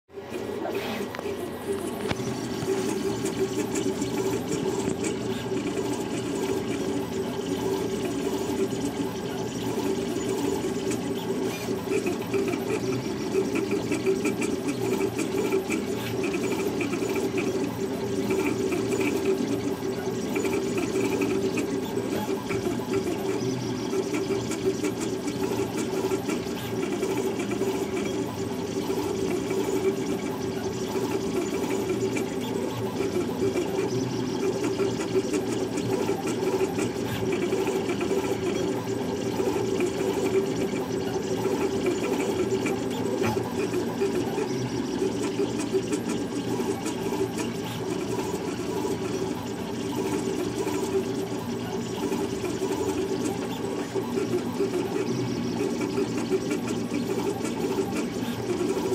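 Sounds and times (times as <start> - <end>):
stepper motors whirring: 0.3 - 58.9.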